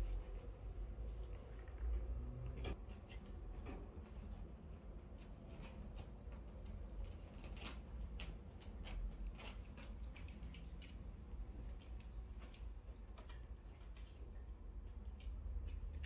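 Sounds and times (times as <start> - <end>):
kitten claws scratching fabric: 2.8 - 13.0.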